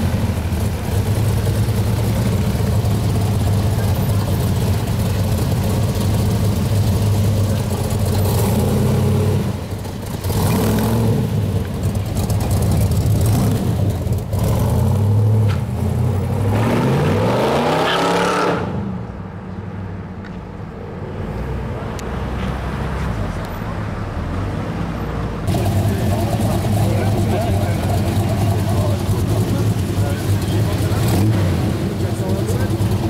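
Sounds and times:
car engine idling: 0.0 - 16.3, 25.5 - 33.0
car engine revving away: 5.5 - 18.9, 25.5 - 33.0.

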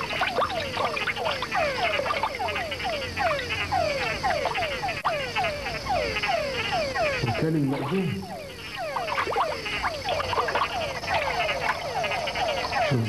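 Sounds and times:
frogs calling: 0.0 - 13.0.

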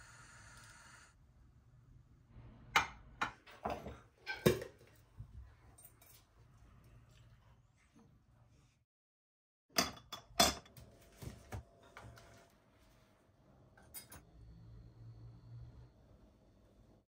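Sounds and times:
porcelain dishes clinking: 9.7 - 10.8.

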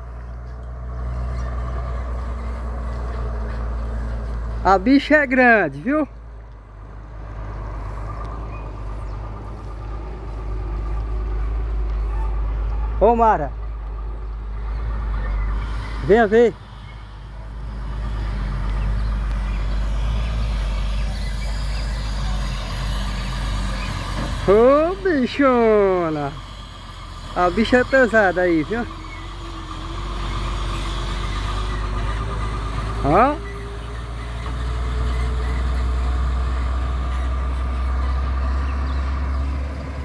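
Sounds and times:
diesel truck engine droning: 0.0 - 40.0.

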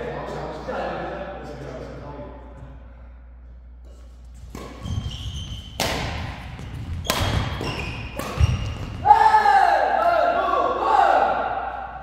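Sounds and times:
footfalls on court floor: 4.4 - 9.2
racket hitting shuttlecock: 4.5 - 9.0.

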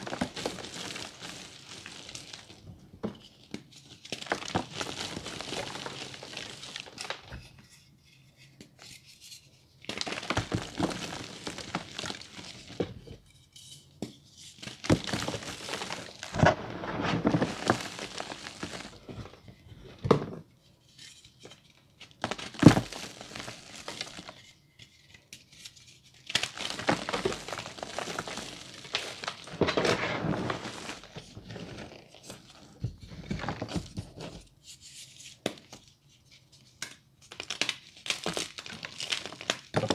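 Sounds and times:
chalk crunching and crumbling: 0.0 - 2.6, 3.6 - 7.3, 9.8 - 13.0, 14.4 - 19.3, 22.0 - 24.5, 25.6 - 34.4.

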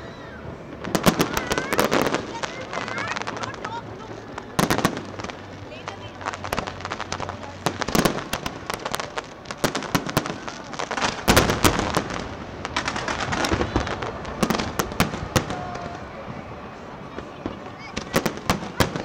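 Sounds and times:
fireworks bangs and crackles: 0.0 - 19.0.

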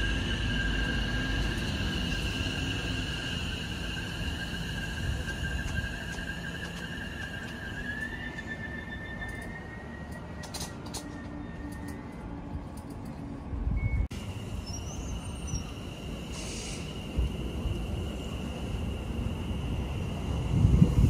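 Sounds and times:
electric train rumble and whine: 0.0 - 21.0
short hiss: 16.3 - 17.0.

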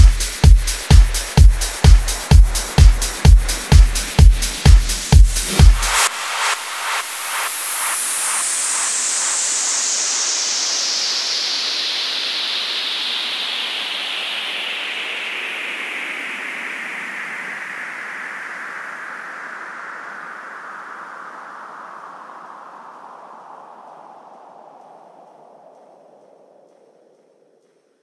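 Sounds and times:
dance music beat: 0.0 - 7.0
electronic noise sweep: 0.0 - 15.3.

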